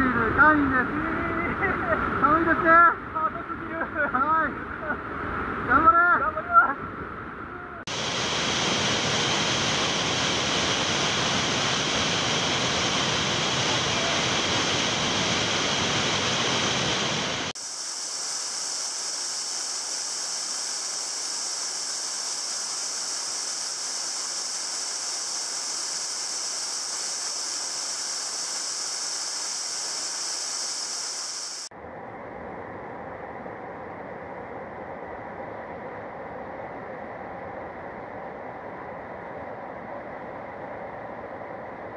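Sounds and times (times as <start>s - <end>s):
waterfall rushing: 7.9s - 31.7s.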